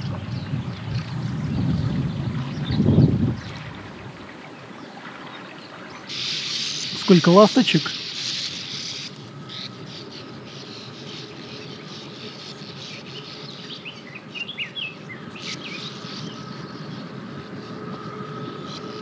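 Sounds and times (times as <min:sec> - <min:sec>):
birds twittering chirps: 0:00.0 - 0:19.0
high hiss: 0:06.1 - 0:09.2.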